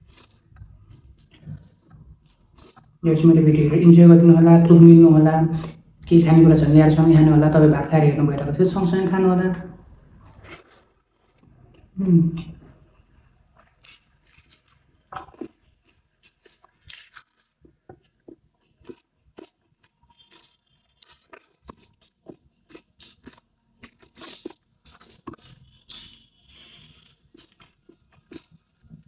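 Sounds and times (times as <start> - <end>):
person chewing crunchy food: 0.0 - 3.0, 10.2 - 12.0, 13.5 - 29.0.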